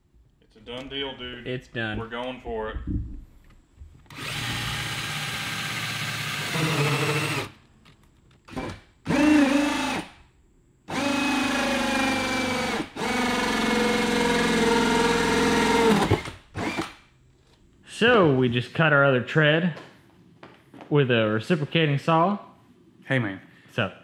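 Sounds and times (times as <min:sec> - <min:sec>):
cordless drill drilling: 0:04.1 - 0:07.6, 0:08.5 - 0:10.1, 0:10.9 - 0:17.0.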